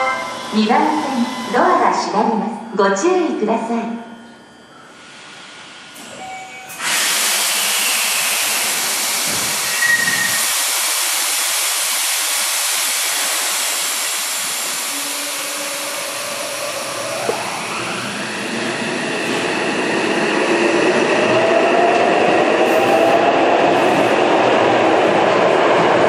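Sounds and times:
traction motor whine rising: 12.9 - 25.7.

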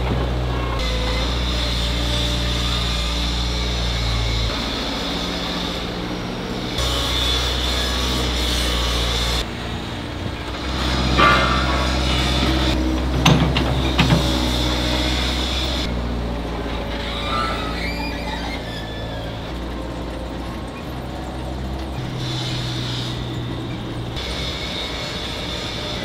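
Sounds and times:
conveyor belt running: 0.0 - 26.0
machinery humming: 0.0 - 26.0
sharp metal clanks: 10.8 - 15.6.

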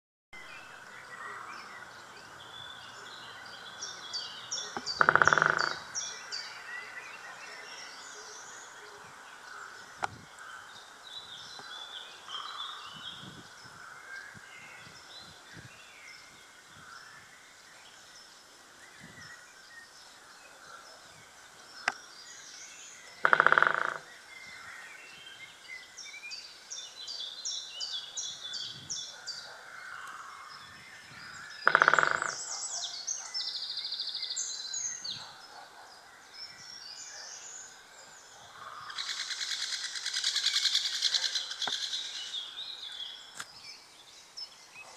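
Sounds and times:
woodpecker drumming on tree: 4.6 - 6.2, 23.1 - 24.1, 31.6 - 32.5, 38.9 - 42.3.

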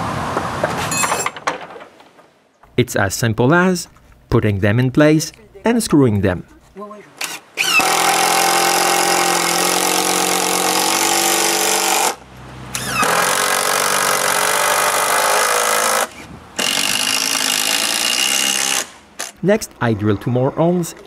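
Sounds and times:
cordless drill driving screws: 7.2 - 19.4.

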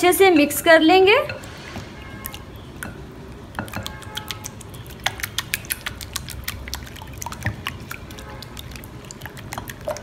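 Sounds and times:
eggs being beaten: 2.2 - 10.0.

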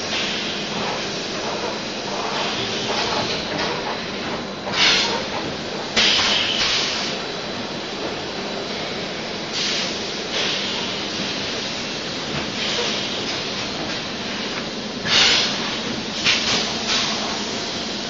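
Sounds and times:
compressed air hiss: 9.5 - 11.5.

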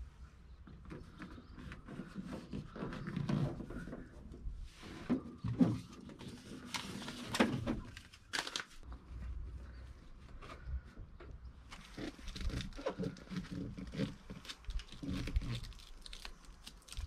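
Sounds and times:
foil mat crinkling and scraping: 11.7 - 17.0.

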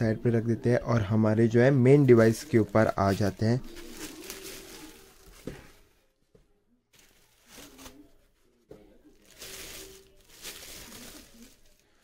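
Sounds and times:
faint rustling: 7.0 - 12.0.

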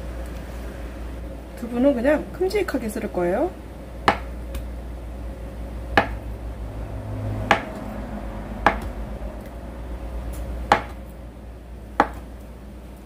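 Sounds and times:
knife tapping on cutting board: 8.6 - 8.9, 12.0 - 12.2.

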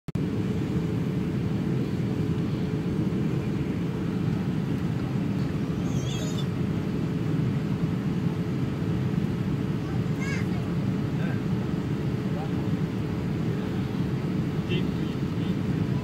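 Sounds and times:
airliner cabin rumble: 0.2 - 16.0.

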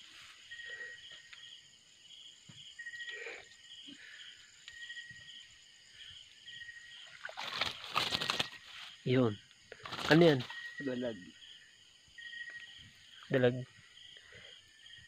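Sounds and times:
crickets chirping in pulses: 0.0 - 15.0
steady high insect trill: 0.0 - 15.0.

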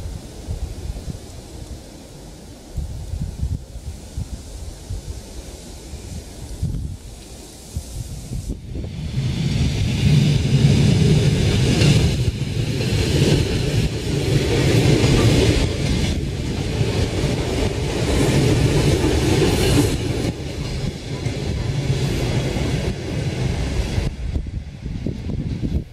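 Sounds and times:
train wheels rumbling on rails: 0.0 - 25.9
clickety-clack over rail joints: 9.2 - 25.9.

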